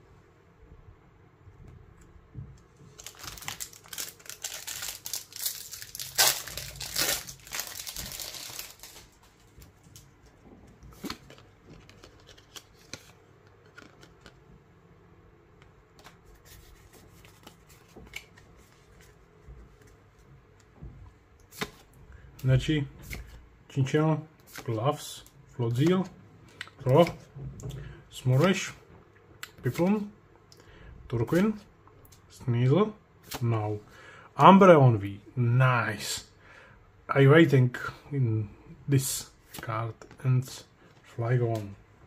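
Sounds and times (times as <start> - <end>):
foil wrapper tearing and crinkling: 2.9 - 9.2.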